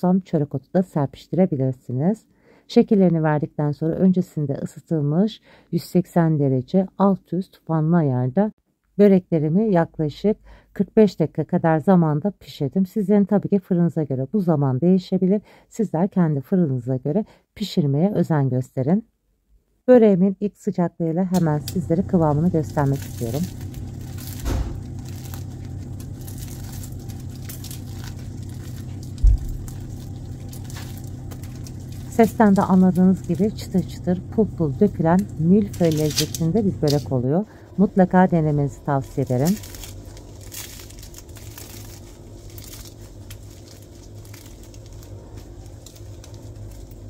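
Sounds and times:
flaky pastry crackling: 0:21.4 - 0:47.0
dull low thumps: 0:28.9 - 0:31.5.

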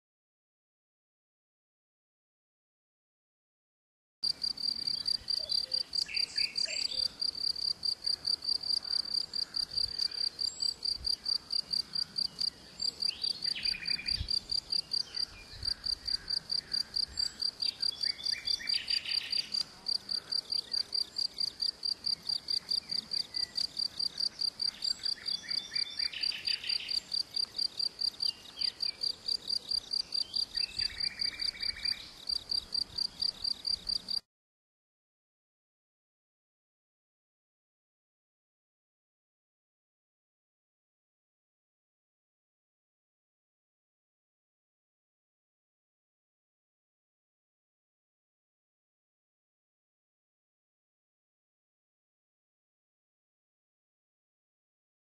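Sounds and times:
cricket chirping: 0:04.2 - 0:34.2
songbirds singing: 0:04.2 - 0:34.2.

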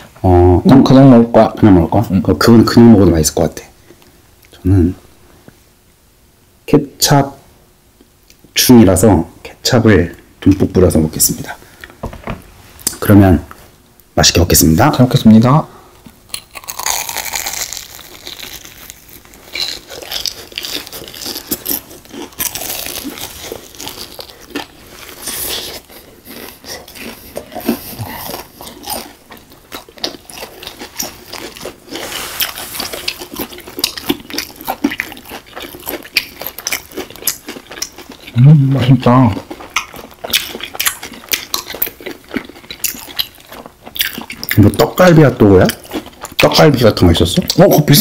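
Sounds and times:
wet chewing: 0:16.0 - 0:46.6
crunching fried batter: 0:16.1 - 0:48.0.

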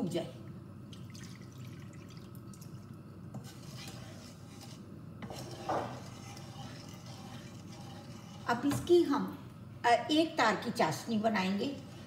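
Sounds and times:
water pouring: 0:00.9 - 0:02.8
liquid sloshing: 0:00.9 - 0:02.9
spatula scraping frying pan: 0:03.3 - 0:09.0, 0:11.1 - 0:12.0.

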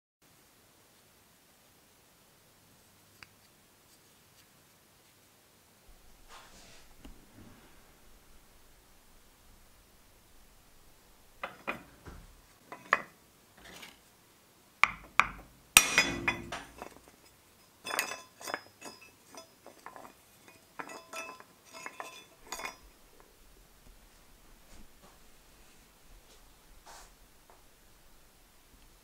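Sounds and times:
metal parts clinking: 0:15.0 - 0:23.0
loud metal clank ringing: 0:15.2 - 0:17.0.

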